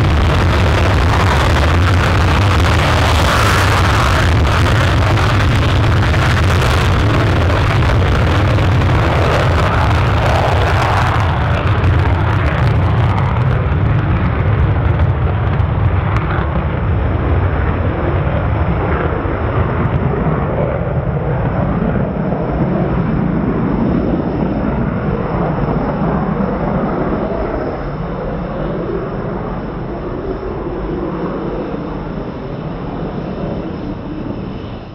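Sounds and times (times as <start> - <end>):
jet engine roaring in afterburner: 0.0 - 34.9.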